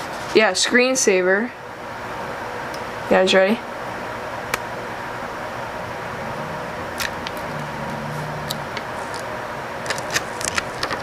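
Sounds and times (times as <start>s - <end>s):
steady background hiss: 0.0s - 11.0s
plastic film peeling clicks: 9.9s - 11.0s.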